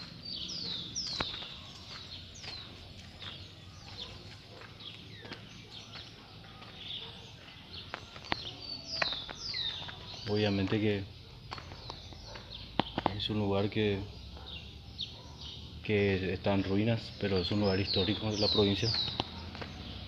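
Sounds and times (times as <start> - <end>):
birds chirping: 0.0 - 20.0.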